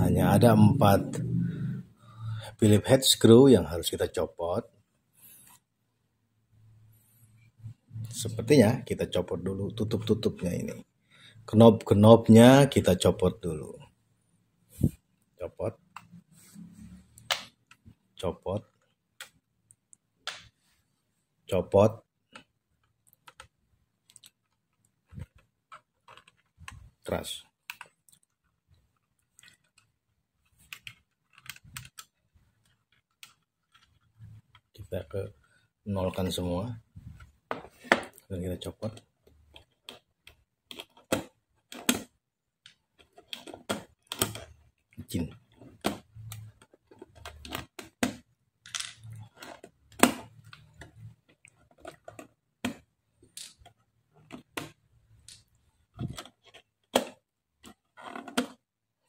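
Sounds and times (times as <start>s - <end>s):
plastic knobs clicking: 29.3s - 34.8s, 38.0s - 58.6s.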